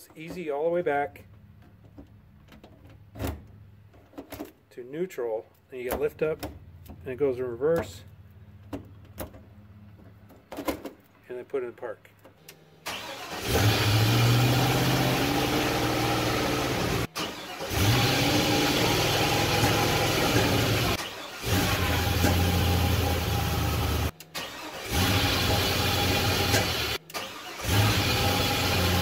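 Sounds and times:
car engine starting and running: 12.4s - 29.0s.

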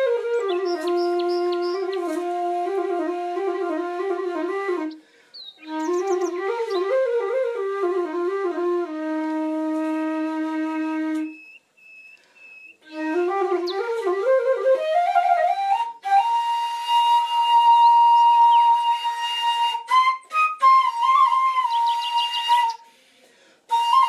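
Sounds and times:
flute melody: 0.0s - 22.9s, 23.7s - 24.0s
faint high chirps: 0.4s - 2.0s, 4.9s - 6.9s, 11.3s - 12.9s.

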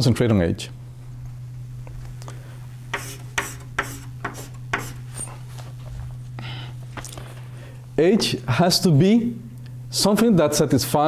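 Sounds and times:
rubbing strokes on a board: 2.9s - 5.2s.

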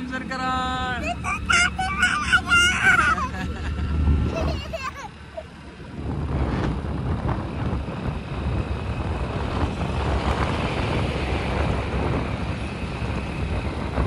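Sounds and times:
wind buffeting the microphone: 5.8s - 14.0s.

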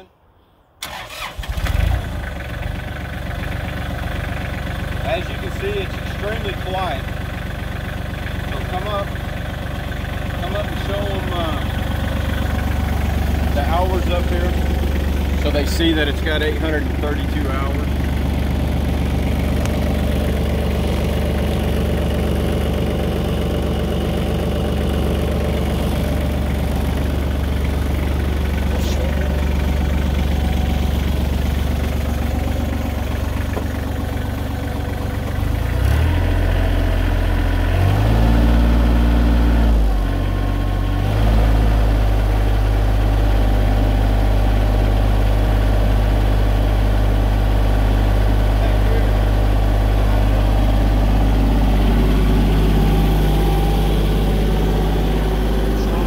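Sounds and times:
tractor diesel engine idling: 0.8s - 56.0s
engine revving up: 35.6s - 40.0s.

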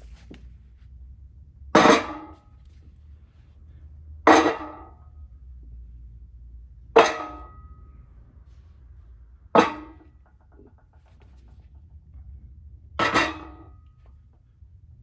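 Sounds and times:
metal weights clanging on metal: 9.6s - 11.2s, 13.0s - 14.0s.

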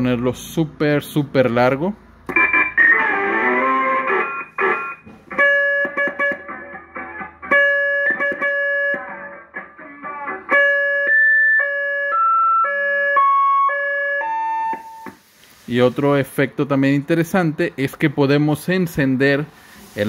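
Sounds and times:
held electronic beeps changing pitch: 2.3s - 6.8s.

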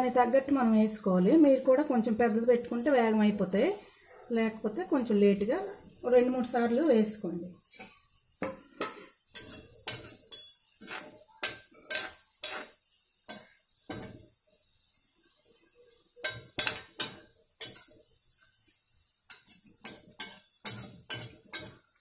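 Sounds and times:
oil sizzling: 0.0s - 22.0s
metal spoon clinking on metal pan: 8.8s - 12.7s, 13.3s - 14.2s, 16.2s - 17.9s, 19.3s - 21.9s.

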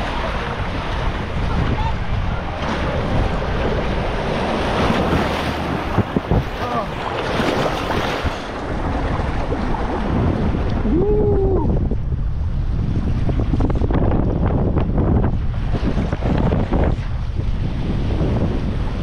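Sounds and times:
water rushing: 0.0s - 12.1s
wind buffeting camera: 0.0s - 19.0s.

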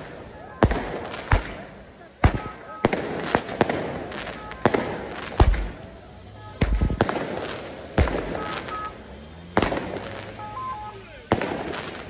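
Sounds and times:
firecracker bangs: 0.0s - 12.0s
firework mortar booms: 0.0s - 12.0s
short whistle-like tones: 1.2s - 7.0s, 7.6s - 11.3s.

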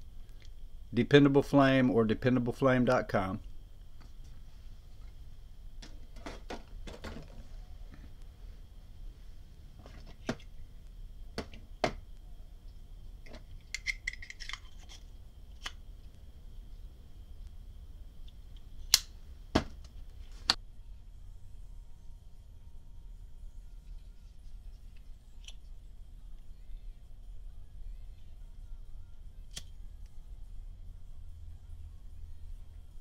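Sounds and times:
small metal parts clicking: 13.5s - 15.0s.

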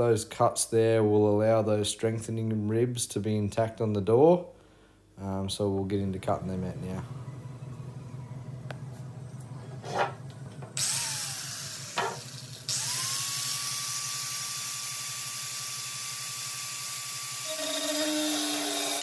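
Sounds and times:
angle grinder cutting metal: 9.8s - 19.0s.

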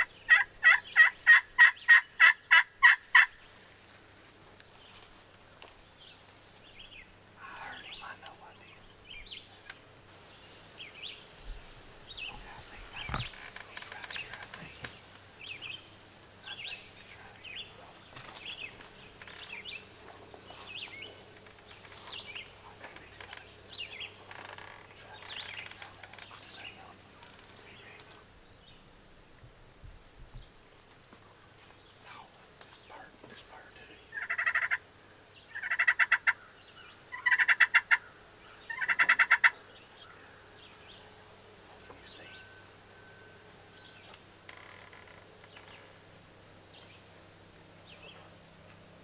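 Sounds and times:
turkey gobbling: 0.0s - 3.4s, 34.1s - 34.8s, 35.5s - 36.4s, 37.1s - 38.1s, 38.7s - 39.6s
songbird chirps: 0.0s - 29.5s, 30.2s - 49.0s.

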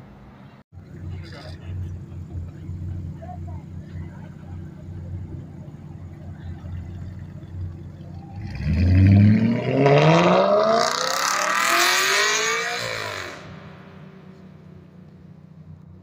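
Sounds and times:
car engine revving and shifting: 5.7s - 16.0s.

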